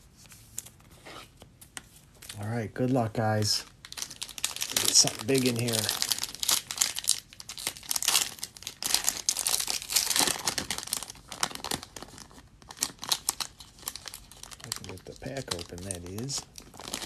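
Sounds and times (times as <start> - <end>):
foil wrapper crinkling and tearing: 3.4 - 17.0.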